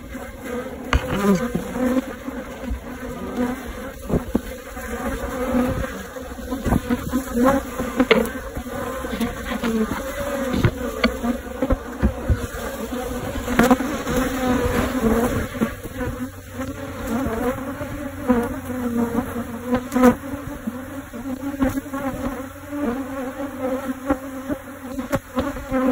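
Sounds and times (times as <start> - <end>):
bees buzzing in hive: 0.0 - 25.9
sharp taps on wooden hive: 0.9 - 2.0, 6.6 - 12.7, 13.5 - 13.8.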